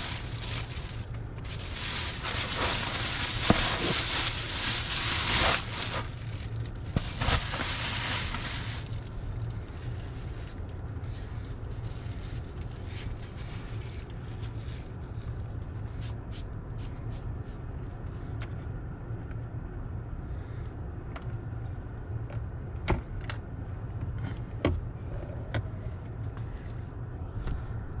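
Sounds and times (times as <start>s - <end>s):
car cabin hum: 0.0s - 10.0s.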